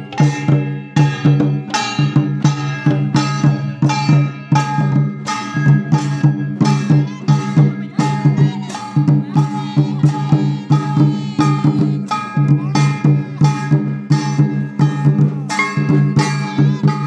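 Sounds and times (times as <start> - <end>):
hand drums beating quick rhythm: 0.0 - 17.0
bamboo flute melody: 6.8 - 17.0.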